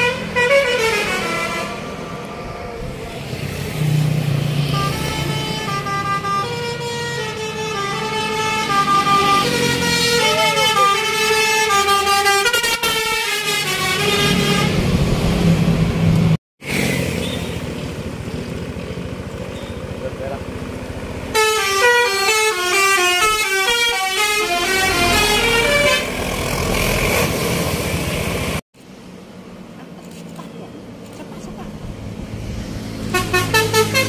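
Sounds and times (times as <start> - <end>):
bus horn playing a melody: 0.0 - 2.1, 4.6 - 15.0, 21.3 - 26.3, 33.0 - 34.0
bus engine rumble: 0.0 - 34.0.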